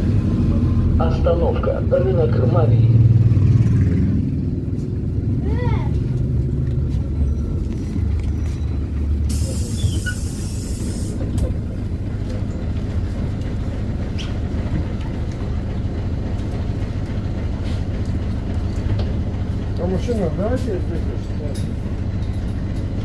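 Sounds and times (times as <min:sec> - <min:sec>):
bus engine running: 0:00.0 - 0:23.0
hiss of compressed air: 0:09.3 - 0:11.2.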